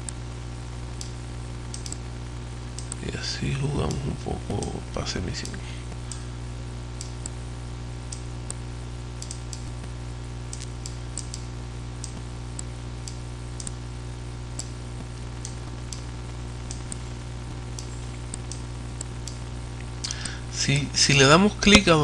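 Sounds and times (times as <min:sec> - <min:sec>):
low electrical hum: 0:00.0 - 0:22.0
computer mouse clicking: 0:01.0 - 0:02.0, 0:09.2 - 0:09.7, 0:10.5 - 0:11.4.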